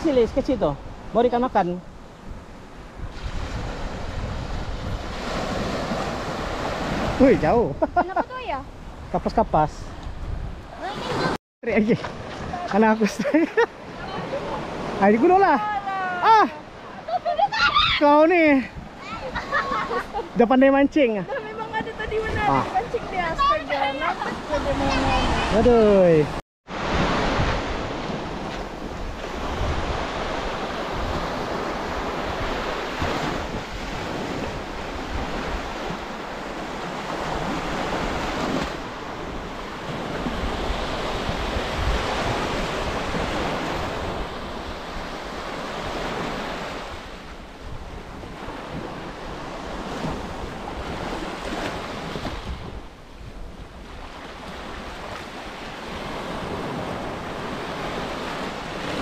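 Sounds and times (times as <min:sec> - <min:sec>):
sea waves washing onto beach: 0:00.0 - 0:59.0
wind rumbling on microphone: 0:01.9 - 0:11.4, 0:21.4 - 0:59.0.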